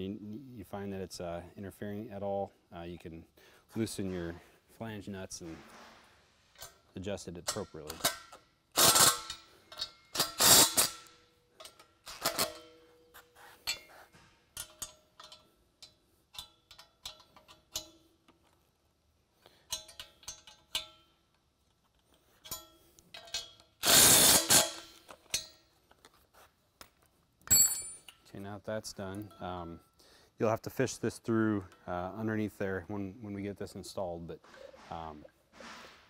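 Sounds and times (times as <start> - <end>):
metallic clinks and knocks: 9.1 - 18.6, 19.6 - 23.8, 24.6 - 26.2, 26.8 - 28.4.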